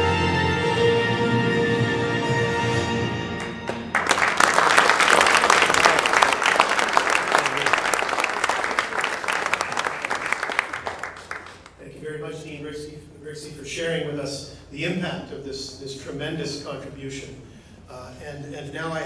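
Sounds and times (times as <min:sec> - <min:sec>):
music: 0:00.0 - 0:04.2
crowd applauding: 0:03.4 - 0:11.8.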